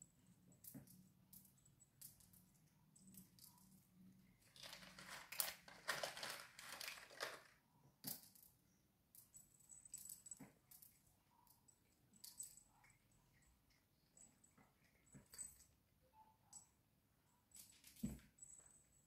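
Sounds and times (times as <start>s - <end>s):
cats crunching dry food: 4.5s - 7.5s.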